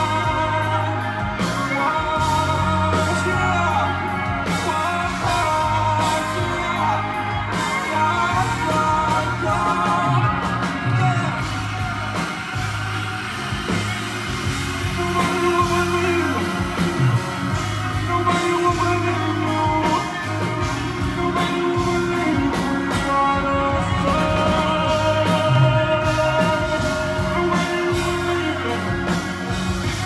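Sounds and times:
live concert music with heavy bass: 0.0s - 30.0s
person singing: 0.0s - 30.0s.

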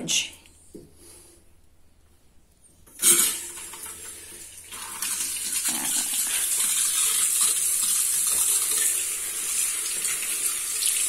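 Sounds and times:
tap water running into basin: 2.9s - 11.0s.

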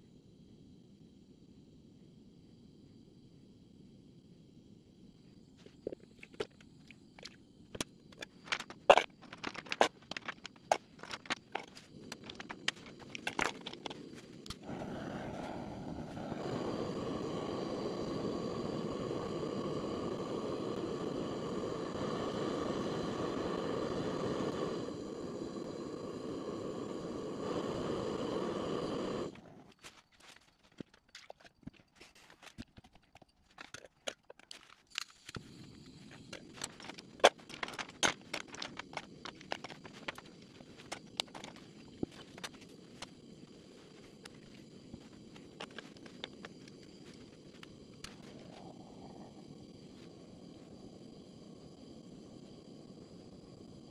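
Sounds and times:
crayons clattering in metal tin: 8.2s - 14.0s, 36.3s - 42.6s
blowtorch hissing: 9.6s - 29.6s, 35.1s - 53.9s.

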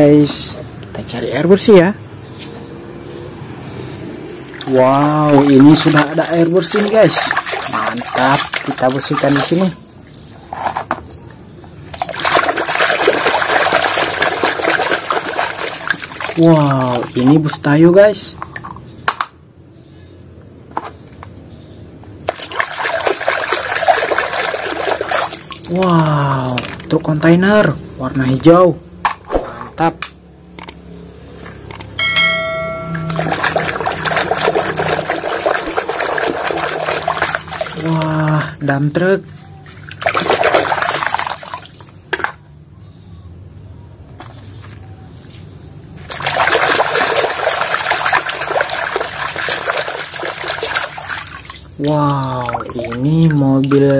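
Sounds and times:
splashing and churning water: 4.4s - 10.4s, 11.8s - 17.5s, 22.2s - 26.9s, 32.0s - 38.8s, 39.4s - 42.4s, 46.0s - 53.9s
clicks: 30.0s - 30.8s
bell-like chime: 32.0s - 33.5s
hand splashing in water: 32.0s - 38.1s.

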